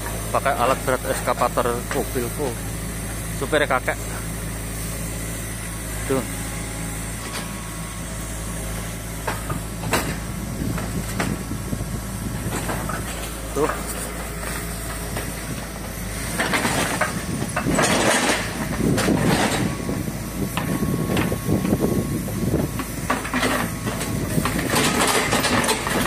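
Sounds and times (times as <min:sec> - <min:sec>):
excavator diesel engine running: 0:00.0 - 0:26.0
debris rustling and clattering: 0:16.3 - 0:19.8, 0:23.1 - 0:26.0.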